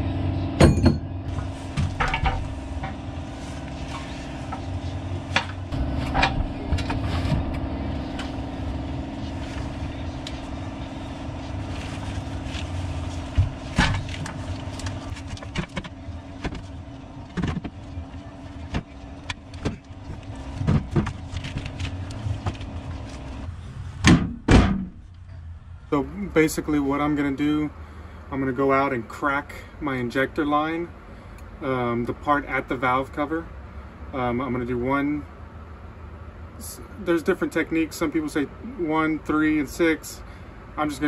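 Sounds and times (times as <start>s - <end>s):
engine-like drone: 0.0s - 41.0s
metal knocks and clanks: 0.6s - 3.0s, 24.0s - 25.1s.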